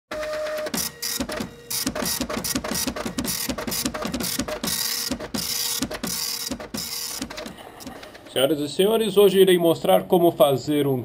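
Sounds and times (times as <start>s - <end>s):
rapid mechanical clattering and whirring: 0.2s - 8.4s.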